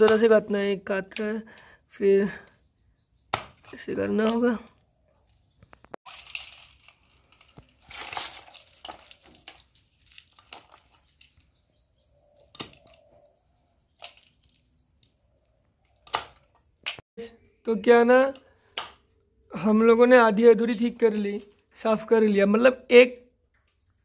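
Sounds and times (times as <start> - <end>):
knife chopping shells on wood: 3.3 - 4.4, 18.7 - 19.1
shells clinking into metal bowl: 6.1 - 11.1.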